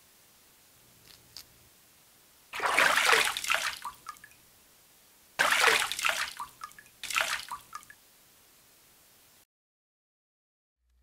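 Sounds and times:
water splashing and running off: 2.6 - 4.3, 5.4 - 7.9
water dripping: 2.6 - 4.4, 5.4 - 8.0.

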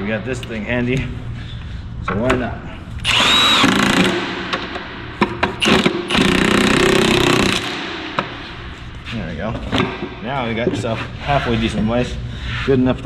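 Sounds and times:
impact wrench hammering: 3.1 - 8.4.

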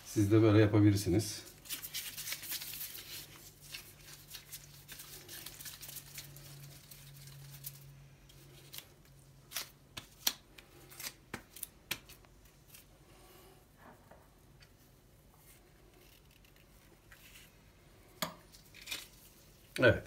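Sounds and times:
hands rubbing sticky dough: 1.5 - 13.4.

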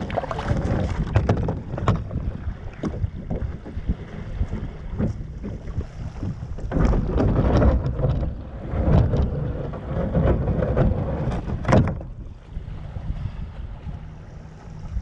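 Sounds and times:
kayak hull scraping over gravel: 0.0 - 11.8
wind buffeting microphone: 0.0 - 15.0.

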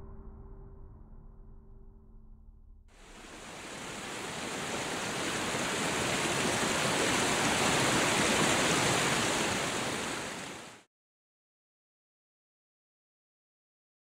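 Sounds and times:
river water rushing over rocks: 3.0 - 10.8.

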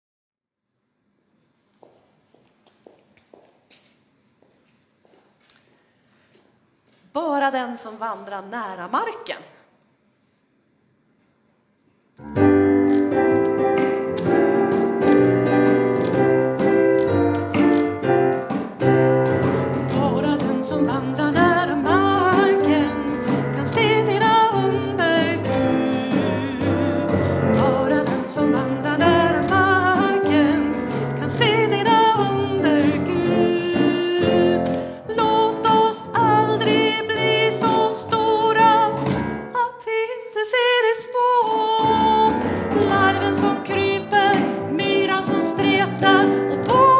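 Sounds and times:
piano chords: 12.2 - 39.7, 41.2 - 46.9
woman singing: 19.8 - 46.9.

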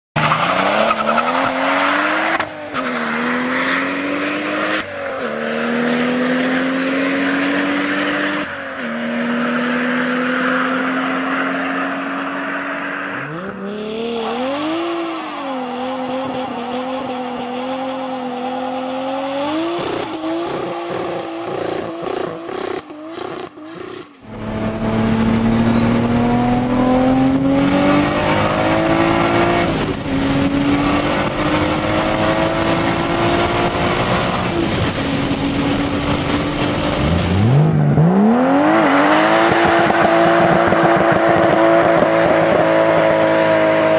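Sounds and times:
engine revving: 0.2 - 12.4, 13.2 - 43.9
car engine accelerating: 0.2 - 43.9
tyre squeal: 2.2 - 3.2, 12.5 - 27.6
turbo whistle: 25.6 - 27.4.

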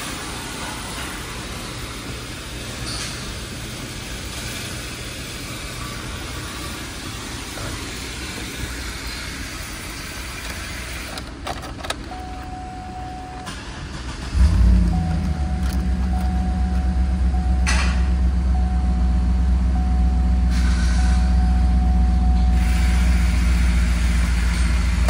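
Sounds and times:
steady whine: 0.0 - 25.0
engine cranking and starting: 13.3 - 18.2
clicks: 14.9 - 16.9.

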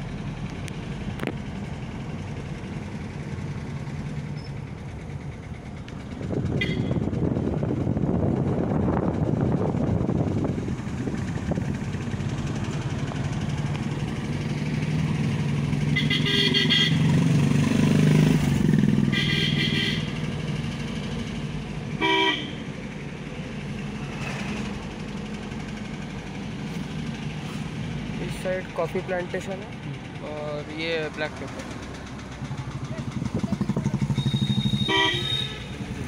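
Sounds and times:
car engine and road noise: 0.0 - 36.0
vehicle horn honking: 6.6 - 7.1, 15.9 - 17.1, 19.1 - 20.2, 22.0 - 22.6, 34.1 - 35.8.

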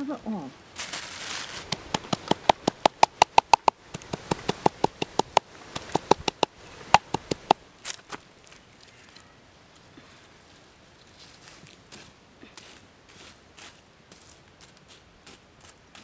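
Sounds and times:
pestle pounding in mortar: 1.7 - 7.6.

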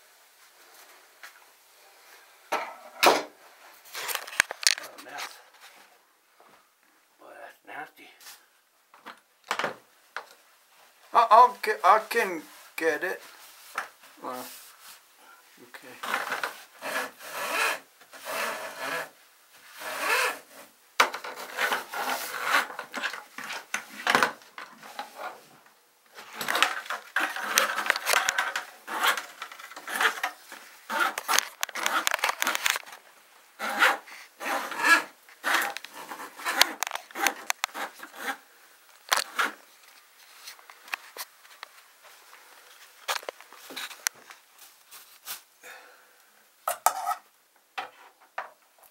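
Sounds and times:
rough rubbing and scraping: 16.0 - 24.1, 26.2 - 33.0, 33.6 - 38.4.

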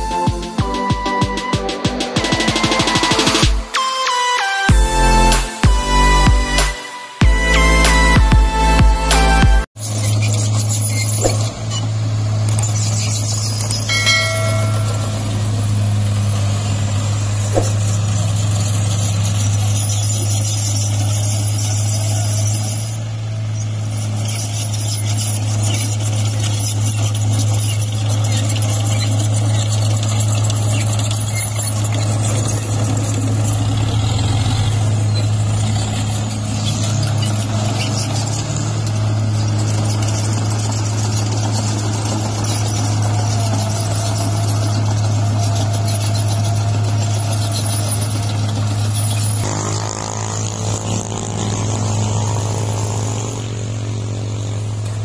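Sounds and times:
truck engine humming: 0.0 - 55.0
high-pitched tone: 13.8 - 16.0.

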